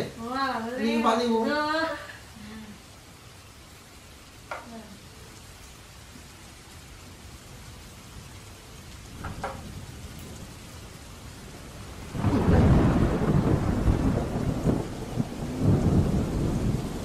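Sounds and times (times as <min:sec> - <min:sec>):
steady rain: 0:00.0 - 0:17.0
thunderclap rumbling: 0:09.1 - 0:17.0.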